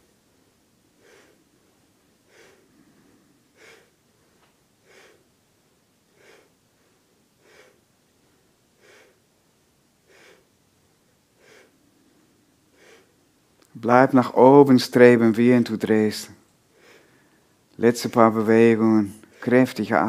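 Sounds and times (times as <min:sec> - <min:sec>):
faint breathing: 0:01.0 - 0:05.4, 0:06.1 - 0:09.3, 0:10.0 - 0:13.4, 0:16.6 - 0:17.7.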